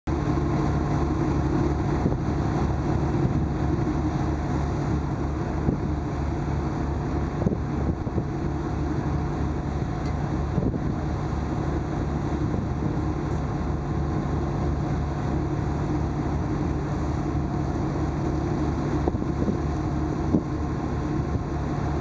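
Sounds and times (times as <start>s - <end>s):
boat engine drone: 0.1s - 22.0s
wind on microphone: 4.7s - 6.1s, 7.2s - 8.6s, 10.5s - 11.2s, 12.3s - 13.2s, 18.9s - 22.0s.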